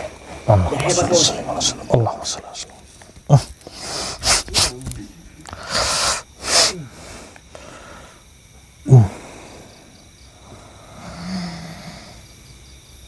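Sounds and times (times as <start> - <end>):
man hissing breaths and snorts: 0.0 - 12.2
man grunting loudly: 0.5 - 3.5, 8.9 - 9.2.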